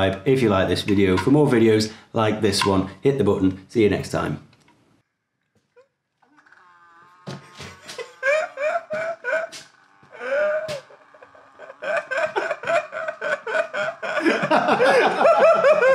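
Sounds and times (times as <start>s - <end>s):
men laughing heartily: 7.3s - 15.9s.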